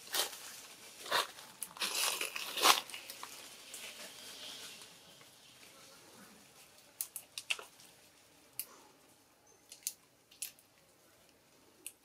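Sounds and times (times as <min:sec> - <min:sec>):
dry leaves and twigs crackling: 0:00.0 - 0:05.7.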